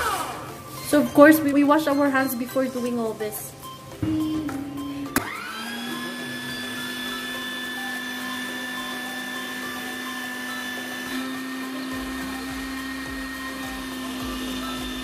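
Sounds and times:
electric meat grinder motor: 0.0s - 0.6s, 5.0s - 15.0s.

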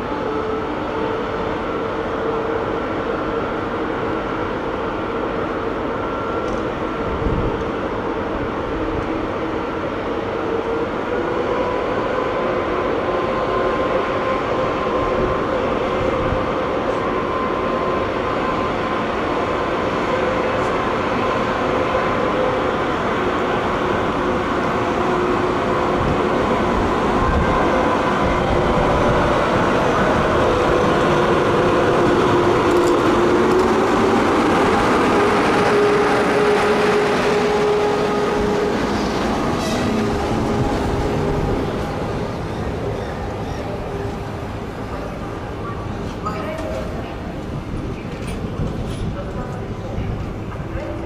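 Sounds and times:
electric locomotive hum and whine: 0.0s - 51.0s.

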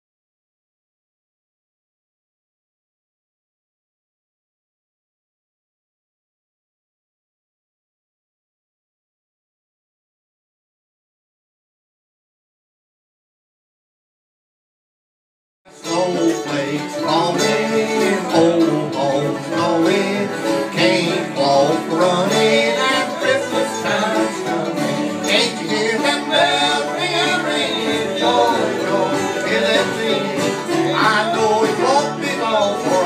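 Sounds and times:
acoustic guitar: 15.7s - 33.0s
fiddle: 15.7s - 33.0s
mandolin: 15.7s - 33.0s
upright bass: 15.7s - 33.0s.

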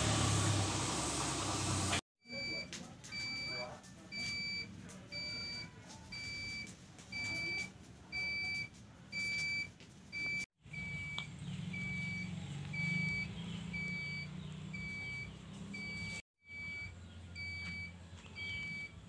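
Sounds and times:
high electronic beeps: 10.3s - 18.9s.

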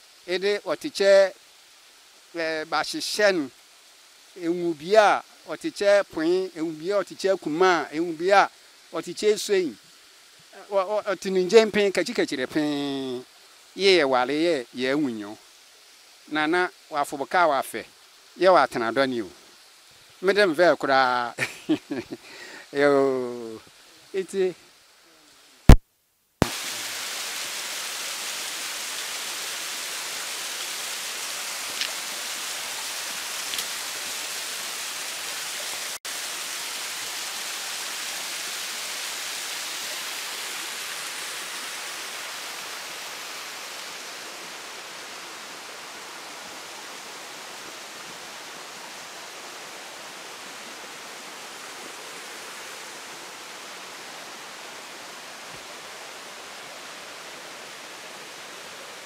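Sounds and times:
waterfall rushing: 26.4s - 59.0s.

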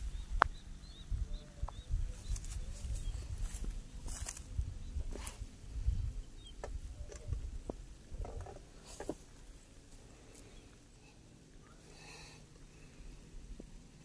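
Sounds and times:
wind rumble on microphone: 0.0s - 8.9s
footsteps crunching on dry grass: 2.1s - 5.5s.

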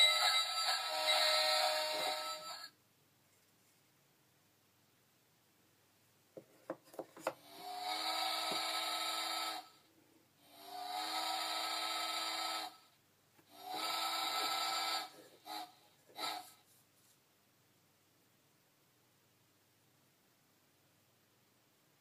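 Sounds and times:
wooden puzzle piece knocking: 6.4s - 7.4s.

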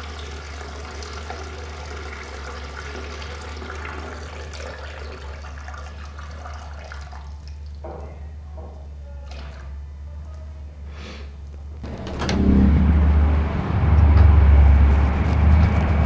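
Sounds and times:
low hum: 11.5s - 16.0s.

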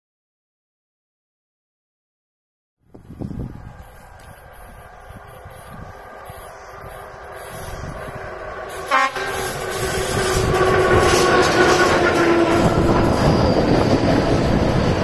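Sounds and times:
electric locomotive approaching: 2.9s - 15.0s
train horn blast: 3.8s - 14.0s.

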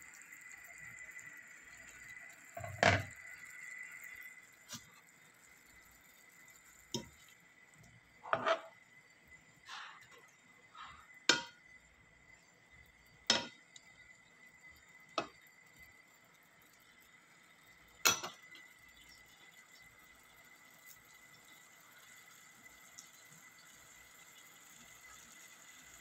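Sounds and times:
utensil scraping a pan: 8.2s - 8.7s.

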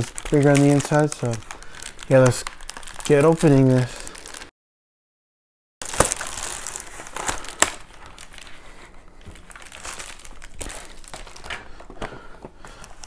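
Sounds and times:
plastic mailer bag crinkling: 0.0s - 4.5s, 5.8s - 13.0s
plastic bag snaps: 5.8s - 7.9s.

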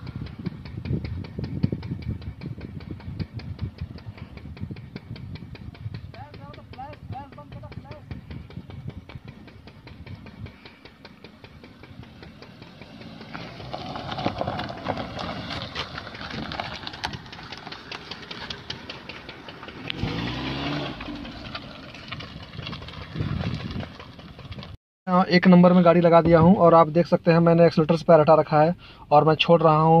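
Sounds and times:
tyres crackling over stones: 9.1s - 24.8s
car engine driving past: 9.9s - 23.6s.

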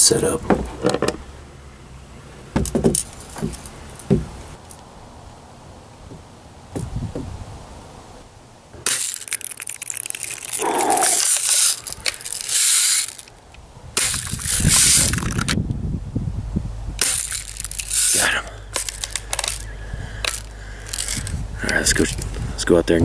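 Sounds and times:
gun handling clicks: 8.8s - 15.6s, 17.0s - 22.3s.

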